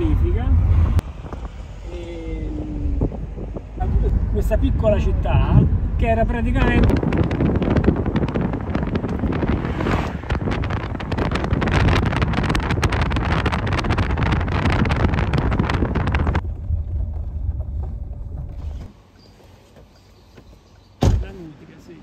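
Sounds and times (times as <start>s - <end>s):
wind buffeting a microphone: 0.0s - 18.9s
car road rumble: 0.0s - 21.5s
dense crackling: 6.3s - 18.8s.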